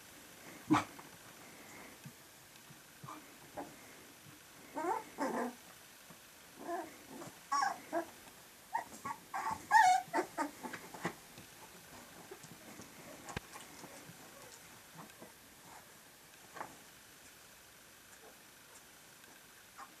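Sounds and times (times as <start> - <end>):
puppies whimpering: 4.8 - 5.6, 6.6 - 8.1, 8.7 - 10.8.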